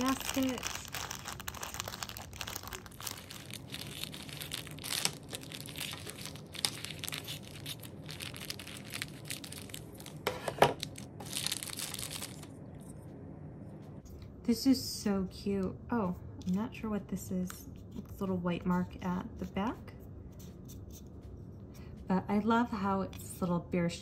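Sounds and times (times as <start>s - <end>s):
scissors cutting plastic: 0.0s - 11.5s
plastic bag crinkling: 0.0s - 12.6s.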